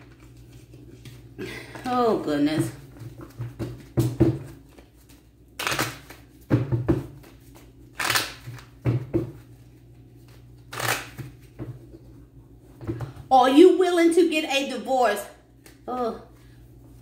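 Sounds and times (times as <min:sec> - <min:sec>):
cards being shuffled: 0:04.6 - 0:06.4, 0:07.2 - 0:08.8, 0:10.2 - 0:11.6.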